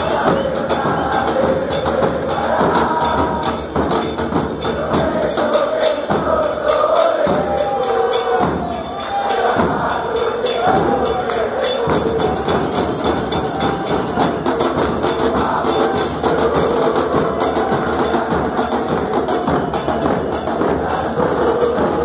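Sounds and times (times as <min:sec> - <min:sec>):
crowd chanting in unison: 0:00.0 - 0:22.0
bass drums beating: 0:08.4 - 0:22.0.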